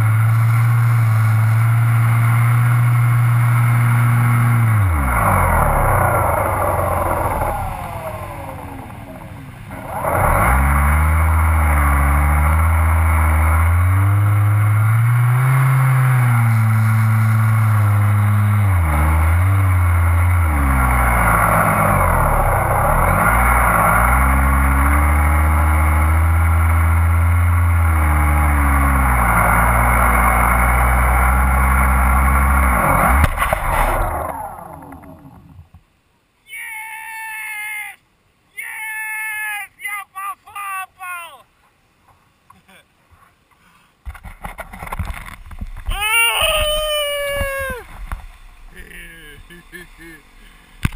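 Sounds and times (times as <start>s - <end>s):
model plane motor and propeller: 0.0s - 35.6s.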